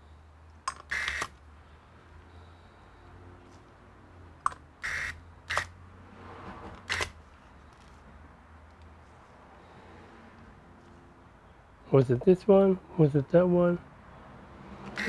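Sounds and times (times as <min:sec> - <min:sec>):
sharp clicks: 0:00.5 - 0:01.4, 0:04.4 - 0:05.7, 0:06.8 - 0:07.2.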